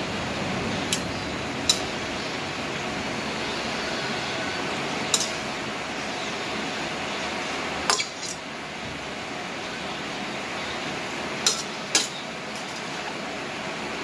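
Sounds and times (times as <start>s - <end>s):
metal utensil clinking on wok: 5.1s - 5.4s, 11.4s - 12.9s.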